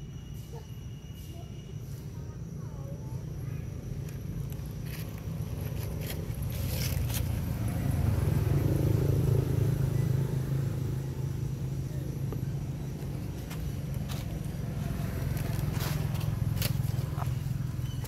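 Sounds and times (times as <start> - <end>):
vehicle engine rumble: 0.0 - 18.0.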